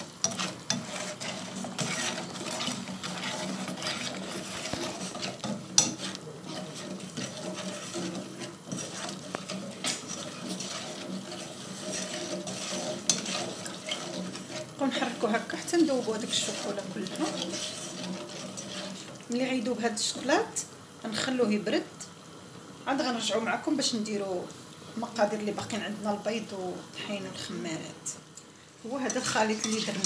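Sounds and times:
whisk knocking on pan: 0.0s - 19.2s
whisk scraping a saucepan: 0.0s - 19.8s, 28.9s - 30.0s.

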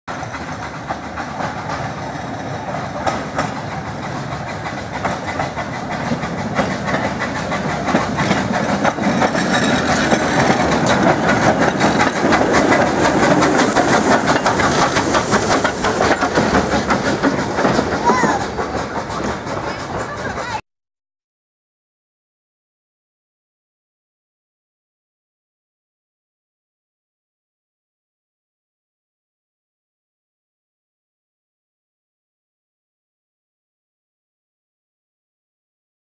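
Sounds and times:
steam train passing: 0.1s - 20.6s
wheels clattering over rail joints: 0.1s - 20.6s.

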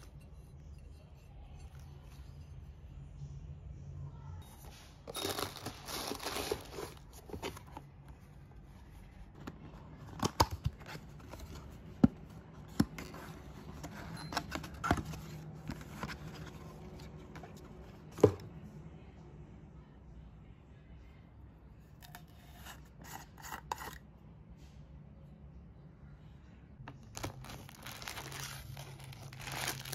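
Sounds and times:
paper and packaging rustling: 4.6s - 11.9s, 26.9s - 29.9s.

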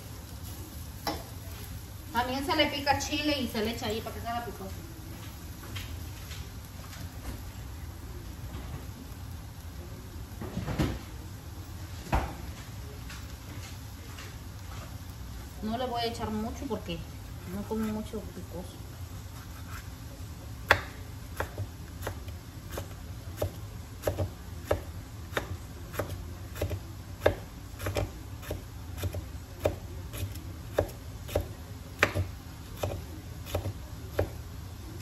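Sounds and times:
knife chopping on wooden board: 20.7s - 34.4s.

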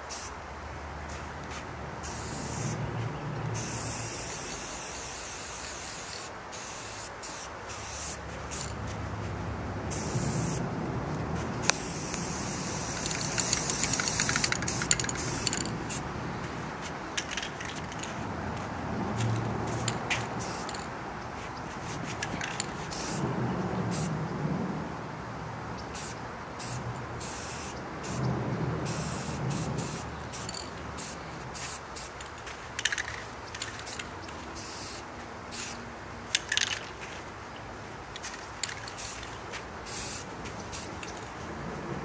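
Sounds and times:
spray paint can hissing: 0.0s - 0.4s, 2.0s - 2.8s, 3.6s - 8.8s, 9.9s - 10.6s, 11.6s - 16.0s, 19.6s - 20.9s, 21.8s - 23.2s, 23.9s - 24.1s, 25.9s - 32.2s, 32.9s - 35.8s, 38.8s - 41.2s.

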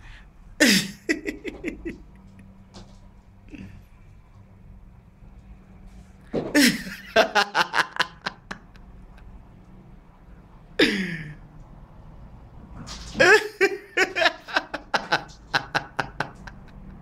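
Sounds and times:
man laughing: 0.6s - 2.3s, 6.6s - 9.2s, 10.8s - 11.4s, 13.2s - 17.0s.

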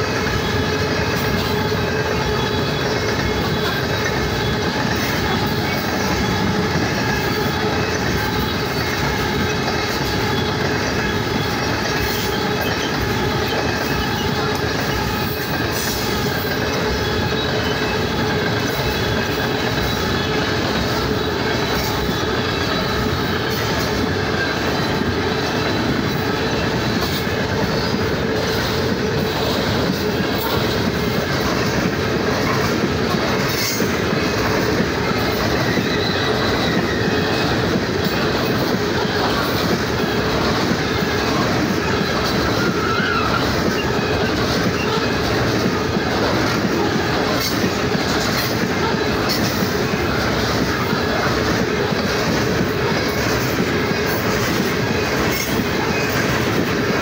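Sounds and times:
steel train wheels rumbling on rail: 0.0s - 57.0s
wheels clacking: 0.0s - 57.0s
faint wheel squeal: 32.4s - 40.6s, 41.2s - 45.5s.

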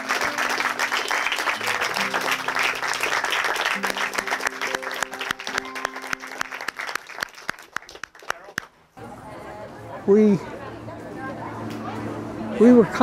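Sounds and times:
music with plucked strings: 0.0s - 6.5s
crowd applauding: 0.0s - 8.7s.

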